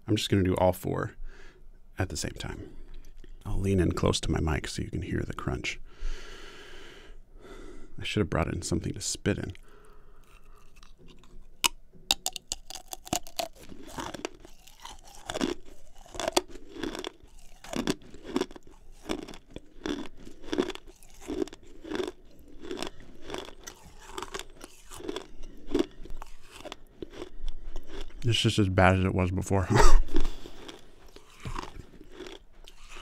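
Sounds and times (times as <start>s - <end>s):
crunching and chewing gum: 2.8s - 4.0s, 9.3s - 28.5s, 30.0s - 33.0s.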